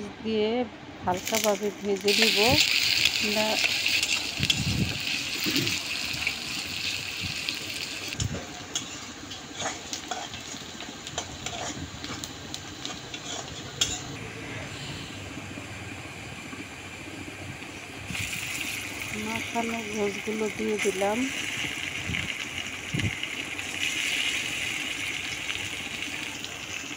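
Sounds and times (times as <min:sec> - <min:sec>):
onions sizzling in oil: 0:01.1 - 0:14.2, 0:16.1 - 0:26.9
metal spatula scraping pan: 0:13.1 - 0:14.1.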